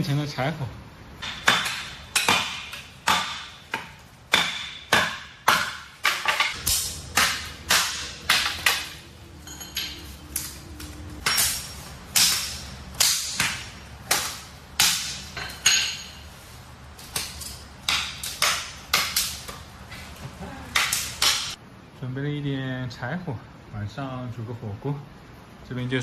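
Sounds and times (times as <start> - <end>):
hatchet chopping wood: 1.2 - 8.9, 11.2 - 15.8, 17.0 - 19.7, 20.7 - 21.6.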